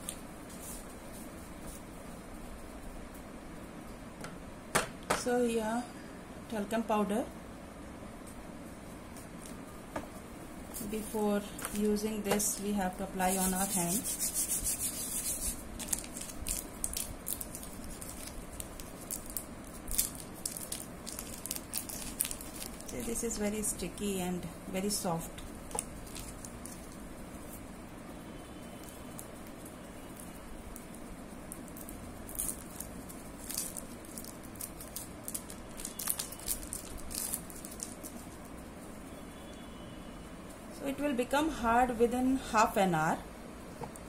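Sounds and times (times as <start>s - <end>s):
wrapper crinkling: 12.5s - 23.4s, 25.7s - 27.1s, 28.8s - 38.5s.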